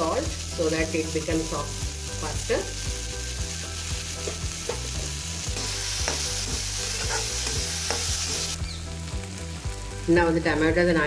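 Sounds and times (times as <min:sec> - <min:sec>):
vegetables sizzling in oil: 0:00.0 - 0:11.0
metal spatula scraping pan: 0:04.2 - 0:08.5.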